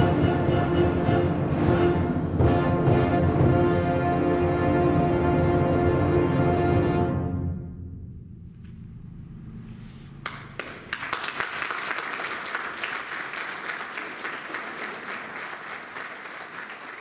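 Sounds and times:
audience applause: 10.2s - 17.0s.

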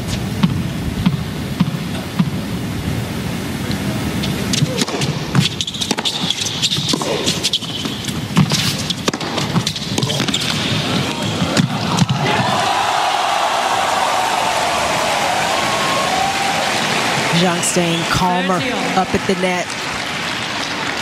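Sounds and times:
racquet striking tennis ball: 4.6s - 12.5s
crowd murmur: 10.1s - 21.0s.

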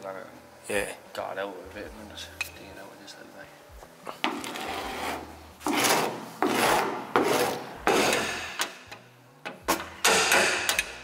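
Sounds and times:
scraper scraping paint off metal: 4.3s - 8.4s.

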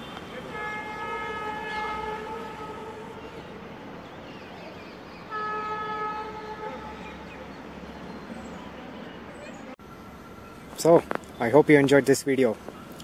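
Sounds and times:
distant train horn blasts: 0.0s - 4.0s, 5.2s - 7.9s
faint train rumble: 0.0s - 12.8s.

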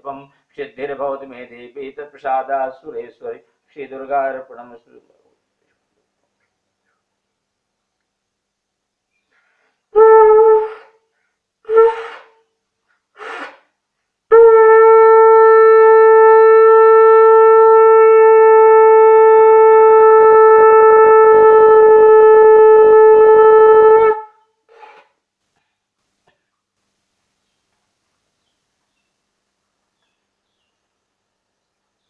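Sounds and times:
conch shell blowing: 9.9s - 11.0s, 11.6s - 12.4s, 14.3s - 25.2s.

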